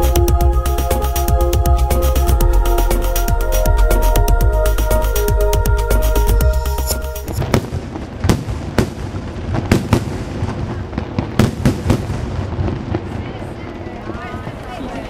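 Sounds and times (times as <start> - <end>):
electronic music: 0.0 - 7.4
fireworks bangs and crackles: 7.3 - 15.0.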